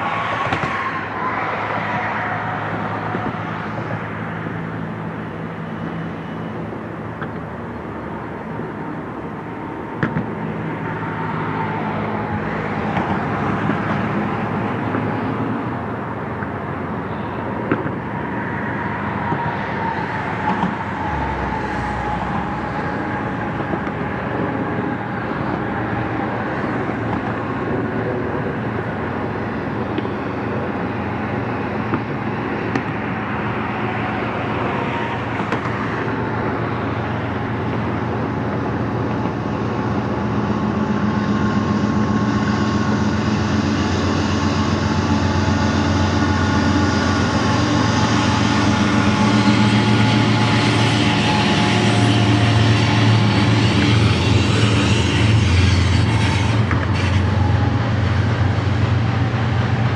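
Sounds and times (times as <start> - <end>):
diesel locomotive engines droning: 0.0 - 59.9
freight cars rolling on rails: 0.0 - 59.9.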